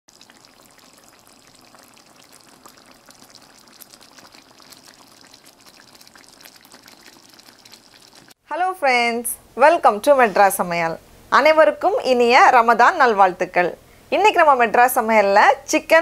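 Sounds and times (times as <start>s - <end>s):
curry bubbling in a pan: 0.1s - 8.4s.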